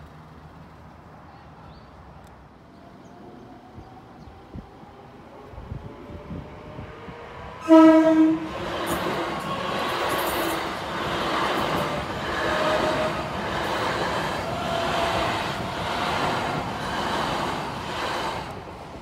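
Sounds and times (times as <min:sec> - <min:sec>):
train wheels rumbling on rails: 0:03.0 - 0:19.0.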